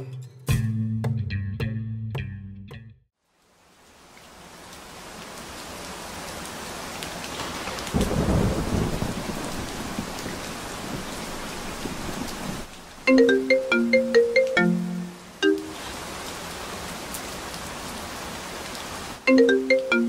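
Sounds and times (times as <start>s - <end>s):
steady rain: 3.2s - 20.0s
low rumble of thunder: 7.9s - 12.7s
bright bell-like melody: 13.1s - 15.8s, 19.3s - 20.0s.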